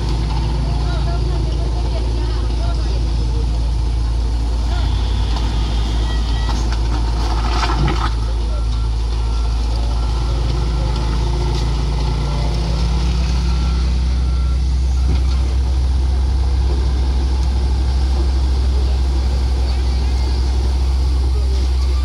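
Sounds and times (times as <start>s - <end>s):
diesel machinery rumbling: 0.0s - 22.0s
reversing alarm beeping: 4.7s - 6.7s, 8.2s - 15.6s.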